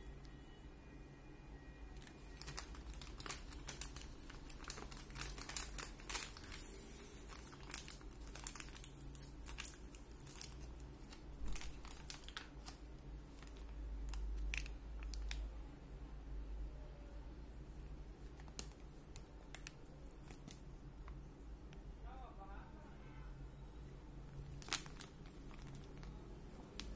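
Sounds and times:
foil pouch crinkling and tearing: 0:02.0 - 0:15.4, 0:18.3 - 0:20.6, 0:24.5 - 0:26.9.

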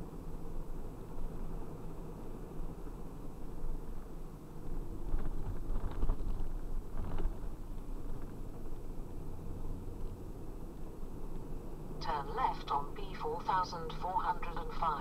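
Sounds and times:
van engine and tyres rumbling: 0:00.0 - 0:15.0.

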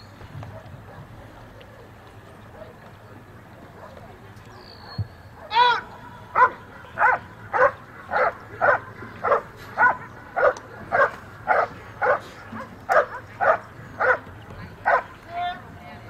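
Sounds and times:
dog barking loudly: 0:06.3 - 0:14.2, 0:14.9 - 0:15.1.

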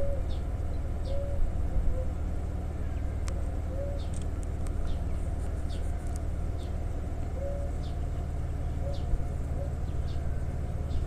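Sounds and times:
bird chirping: 0:00.0 - 0:02.2, 0:02.9 - 0:04.2, 0:04.8 - 0:05.9, 0:06.5 - 0:06.8, 0:07.4 - 0:11.0
birds cooing: 0:00.0 - 0:11.0
electric train humming: 0:00.0 - 0:11.0.

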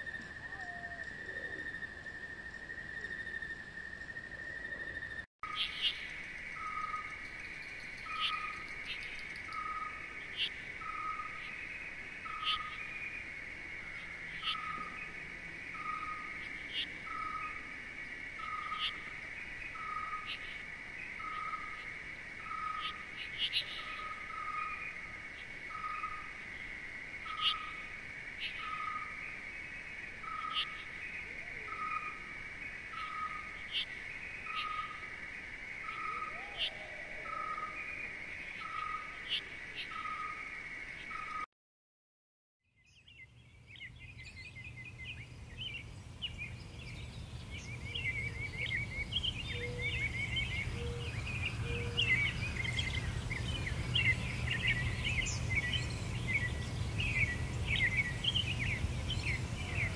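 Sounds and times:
sharp bird chirps: 0:42.8 - 0:59.9
high insect drone: 0:44.8 - 0:59.9.

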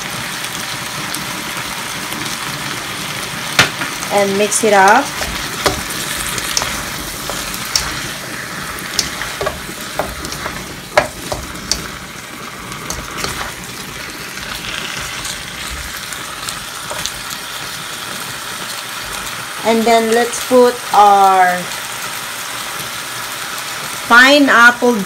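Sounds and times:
meat sizzling in a wok: 0:00.0 - 0:25.0
spatula knocking and scraping pan: 0:04.6 - 0:19.3.

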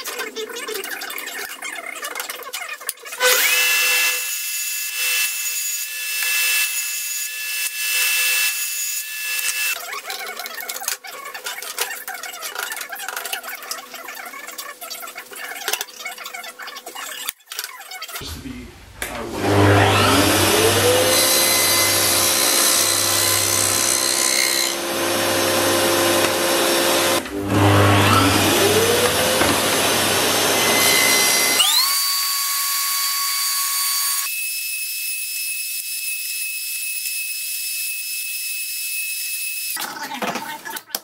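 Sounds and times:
table saw ripping wood: 0:19.0 - 0:34.5.

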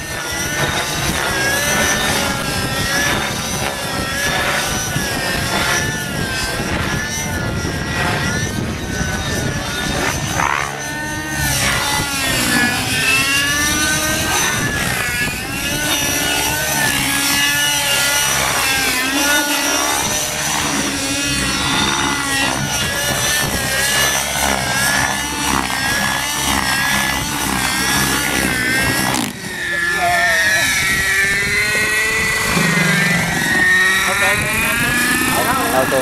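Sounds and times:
model helicopter rotors whining: 0:00.0 - 0:36.0.

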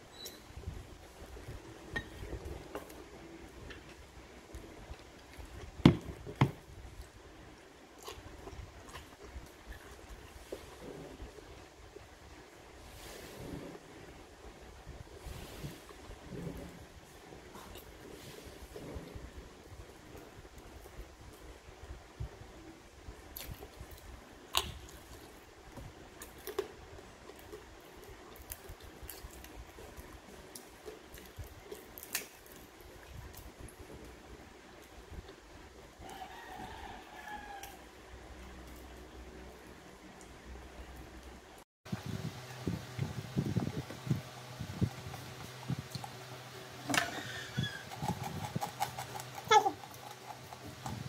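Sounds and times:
chewing and smacking: 0:07.9 - 0:11.4, 0:43.6 - 0:46.6, 0:47.6 - 0:51.0
chewing and lip smacks: 0:47.9 - 0:51.0.

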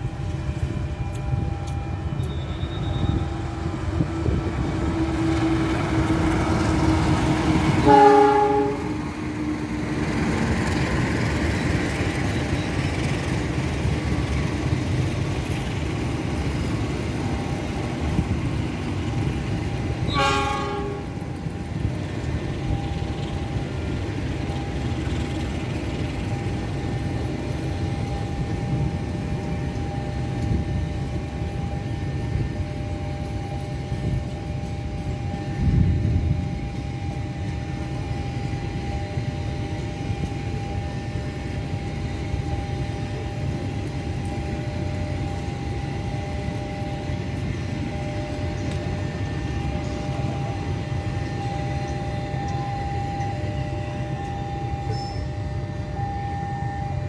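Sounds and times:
train wheels rumbling on rails: 0:00.0 - 0:57.0
steady whine: 0:20.8 - 0:57.0.

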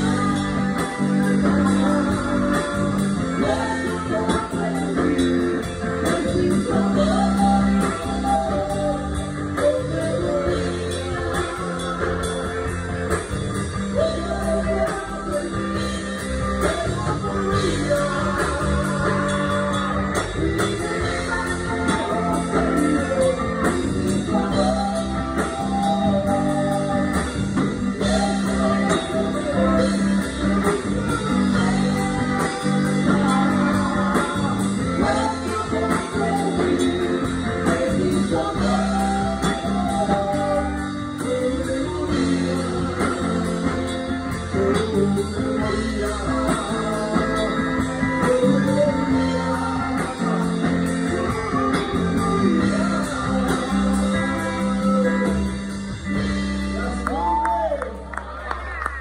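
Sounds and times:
bass guitar: 0:00.0 - 0:59.0
electric guitar: 0:00.0 - 0:59.0
person singing: 0:00.0 - 0:59.0.

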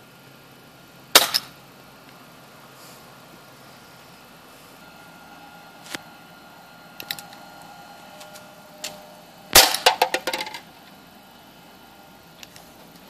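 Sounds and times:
pellet gun shot: 0:01.1 - 0:01.6, 0:09.5 - 0:10.5
clicks and rattles: 0:09.8 - 0:10.6.

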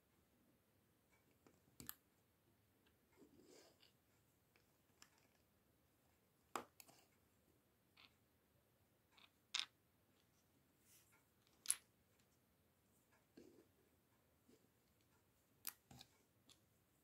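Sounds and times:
plastic bricks clicking: 0:09.2 - 0:09.8, 0:11.5 - 0:11.8.

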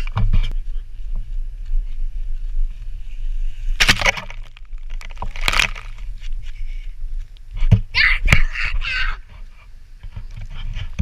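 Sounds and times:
wind and camera handling rumble: 0:03.7 - 0:07.7.

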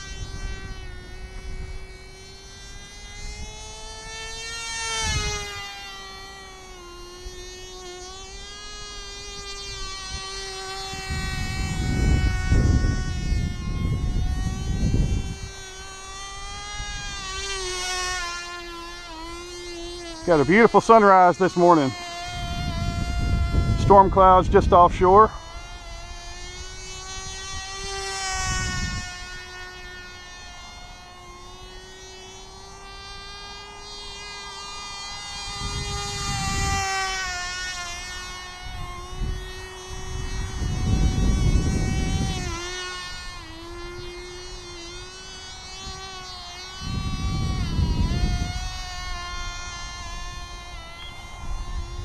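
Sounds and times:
model plane engine buzzing: 0:00.0 - 0:52.0
low rumbling gusts: 0:22.4 - 0:25.3.

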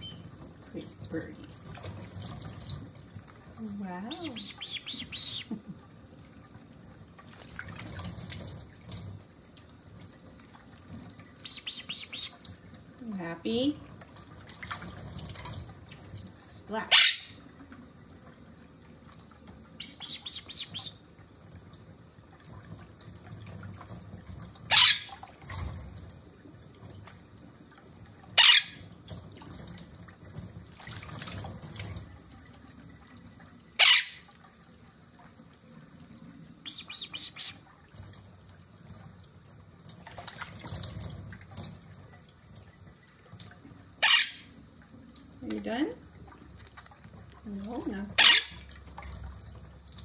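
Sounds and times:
faucet trickling: 0:00.0 - 0:50.0
parrot chirps: 0:04.1 - 0:05.6, 0:11.4 - 0:12.4, 0:16.9 - 0:17.4, 0:19.8 - 0:21.0, 0:24.7 - 0:25.2, 0:28.4 - 0:28.9, 0:33.8 - 0:34.3, 0:36.6 - 0:37.6, 0:44.0 - 0:44.5, 0:48.2 - 0:48.6
bird splashing in water: 0:39.9 - 0:41.8.

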